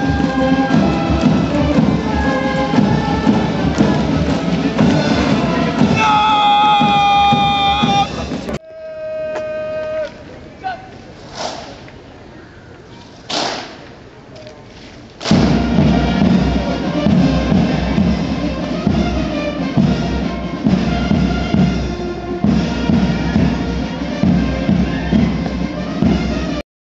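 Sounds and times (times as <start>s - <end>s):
military band playing a march: 0.0s - 8.6s, 15.2s - 26.6s
open-air ambience: 0.0s - 26.2s.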